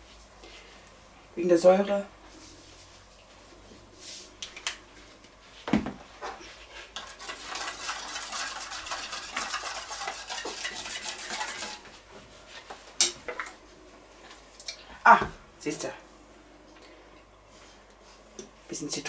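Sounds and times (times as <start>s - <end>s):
spoon scraping steel bowl: 7.0s - 11.8s.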